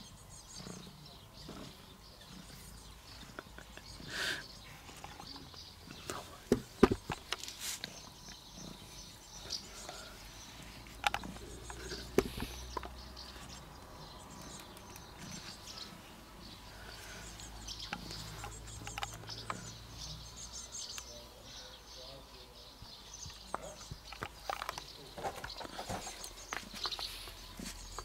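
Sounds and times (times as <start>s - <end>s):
birds chirping faintly: 0.0s - 28.0s
small clicks and taps: 17.4s - 19.8s.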